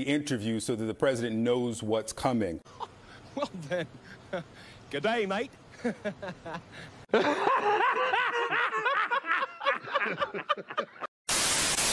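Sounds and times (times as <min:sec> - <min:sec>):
man laughing: 0:02.7 - 0:04.7, 0:05.7 - 0:11.1.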